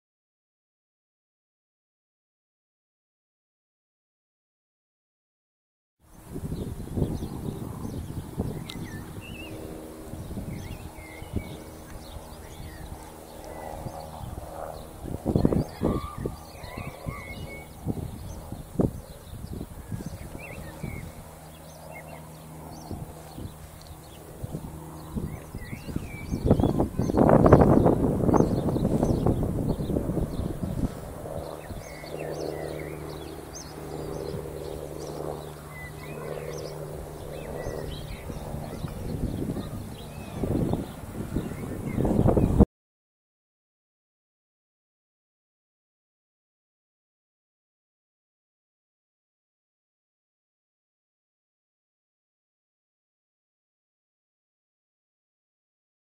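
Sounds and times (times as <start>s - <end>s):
small birds chirping: 6.1s - 42.6s
steady low hum: 6.1s - 42.6s
wind buffeting microphone: 6.1s - 42.6s.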